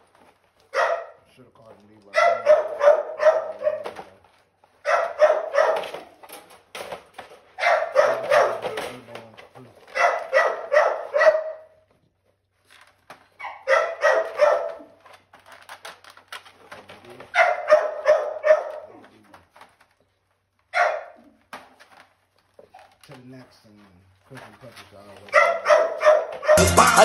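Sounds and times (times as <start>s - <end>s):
dog barking: 0.7s - 1.3s, 2.1s - 4.1s, 4.8s - 6.2s, 7.6s - 9.0s, 9.9s - 11.8s, 13.4s - 15.0s, 17.3s - 19.1s, 20.7s - 21.4s, 25.3s - 26.6s.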